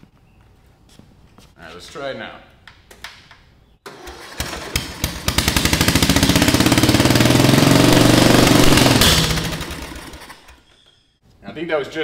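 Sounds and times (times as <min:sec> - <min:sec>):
electric starter cranking engine: 0:03.8 - 0:10.7
mower engine rapid exhaust pulses: 0:03.9 - 0:10.9.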